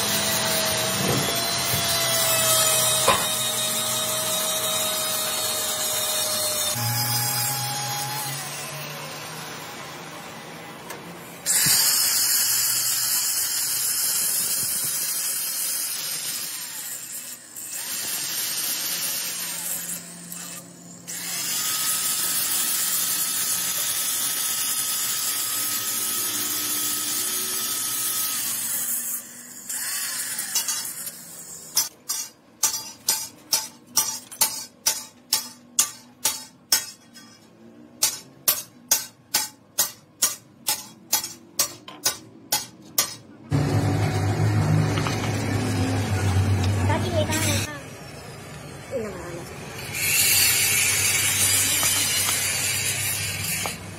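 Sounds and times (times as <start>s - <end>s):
die grinder on steel: 0.0s - 10.5s, 11.3s - 37.4s, 43.5s - 48.0s, 48.9s - 53.9s
angle grinder whining: 0.0s - 31.9s, 43.5s - 53.9s.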